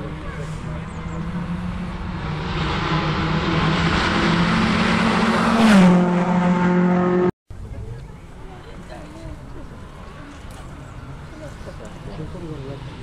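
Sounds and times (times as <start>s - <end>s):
rally car engine passing by: 0.0s - 7.3s.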